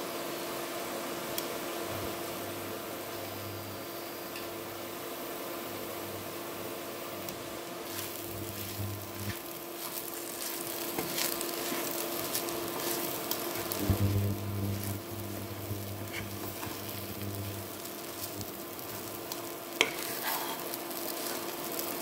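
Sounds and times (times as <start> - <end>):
food frying in a pan: 0.0 - 22.0
wooden spatula scraping a pan: 7.8 - 22.0.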